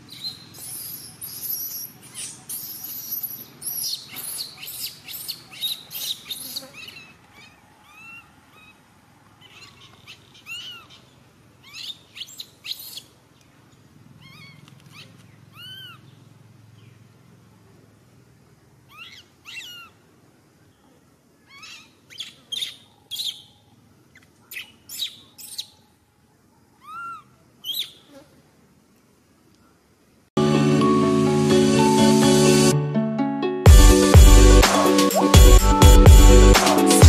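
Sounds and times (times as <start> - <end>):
young monkey crying: 0.1 - 13.1, 14.1 - 16.1, 18.9 - 20.0, 21.4 - 23.4, 26.8 - 28.3.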